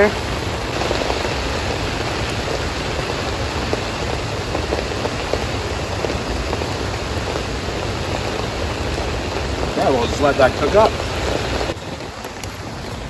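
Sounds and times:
pouring rain: 0:00.0 - 0:13.0.

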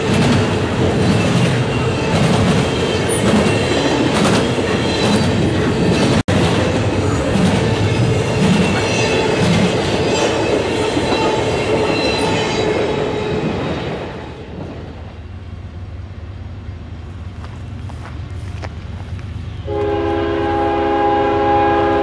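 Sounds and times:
train wheels clattering: 0:00.0 - 0:14.9.

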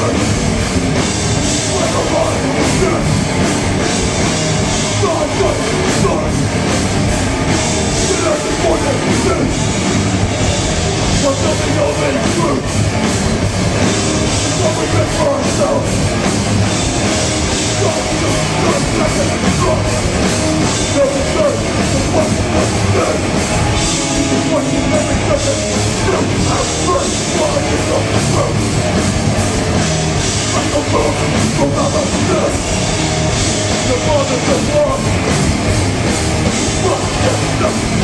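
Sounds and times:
hardcore band playing live: 0:00.0 - 0:38.0
vocalist shouting: 0:24.2 - 0:28.6, 0:36.6 - 0:38.0.

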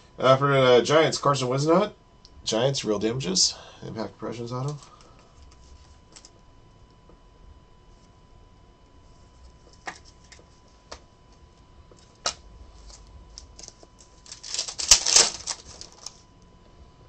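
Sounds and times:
foil wrapper tearing: 0:12.8 - 0:16.2.

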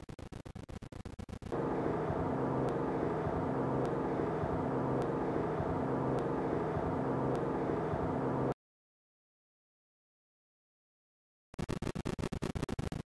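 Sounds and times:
steady mechanical hum: 0:01.5 - 0:08.6.

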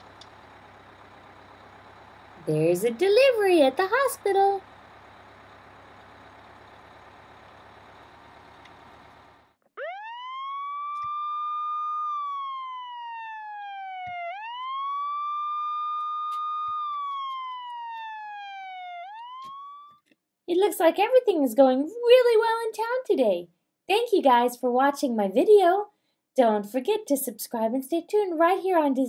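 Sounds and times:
wailing siren: 0:08.4 - 0:20.0.

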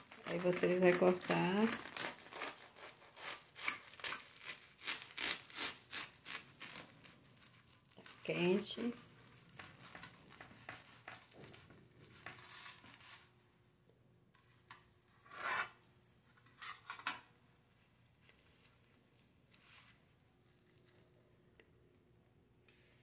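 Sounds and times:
bread crust crackling: 0:00.0 - 0:13.5, 0:16.4 - 0:21.6
metal scraping on pan: 0:15.2 - 0:15.8, 0:16.4 - 0:17.2.

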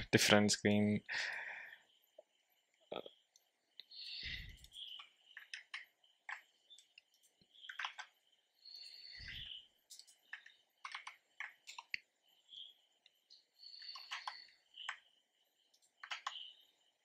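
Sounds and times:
computer mouse and keyboard clicks: 0:04.5 - 0:08.2, 0:09.2 - 0:12.1, 0:13.7 - 0:15.1, 0:15.7 - 0:16.5.

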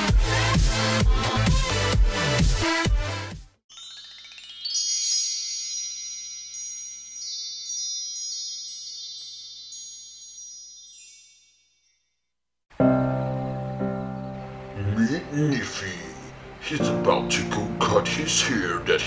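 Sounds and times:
wind chimes tinkling: 0:03.7 - 0:12.4.

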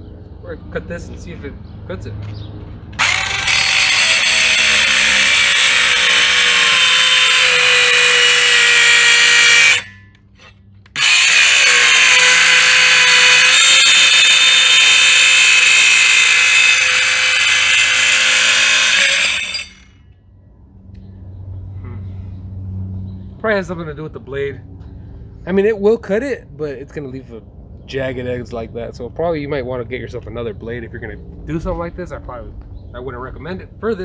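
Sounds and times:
circular saw cutting tile: 0:03.0 - 0:19.9.

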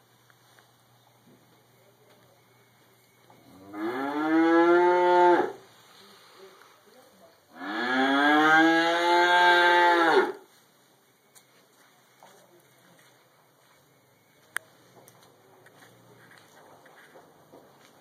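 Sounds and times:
cow mooing: 0:03.6 - 0:05.6, 0:07.6 - 0:10.4.

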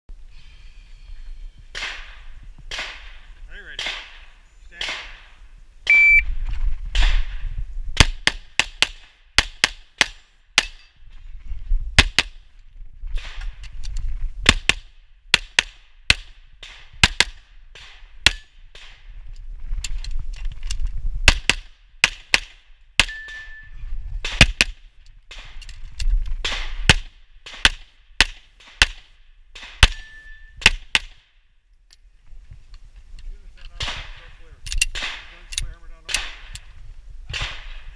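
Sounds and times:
pistol shots: 0:01.7 - 0:05.3, 0:34.9 - 0:36.6, 0:37.3 - 0:37.9.

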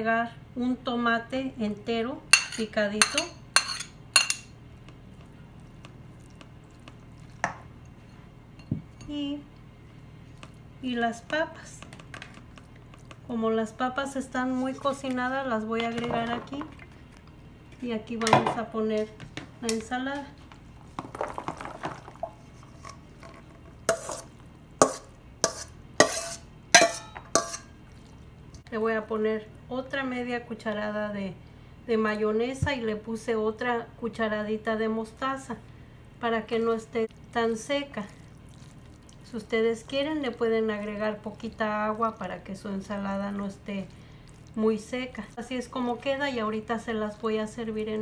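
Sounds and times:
bowl clinking against metal bowl: 0:02.4 - 0:04.5, 0:24.8 - 0:27.7.

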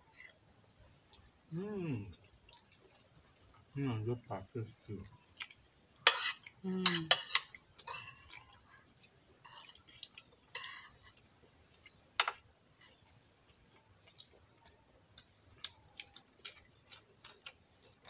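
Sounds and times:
spoons clinking on a plate: 0:06.0 - 0:08.2.

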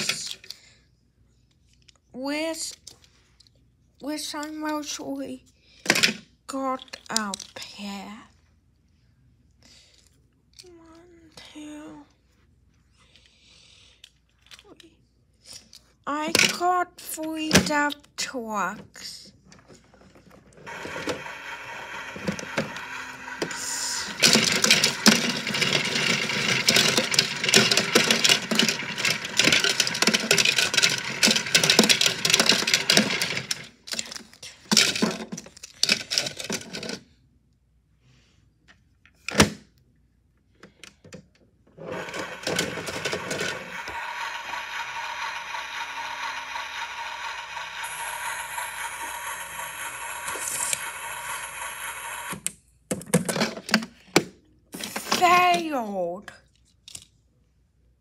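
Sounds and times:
small motor whirring: 0:20.7 - 0:33.5, 0:41.8 - 0:52.4
toy trucks rattling in drum: 0:20.7 - 0:37.0, 0:41.9 - 0:52.4.

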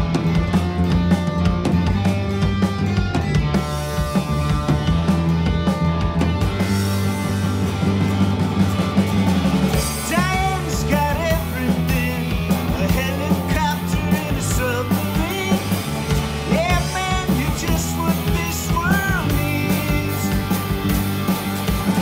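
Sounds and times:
rock band playing: 0:00.0 - 0:22.0
person singing: 0:09.8 - 0:20.8.

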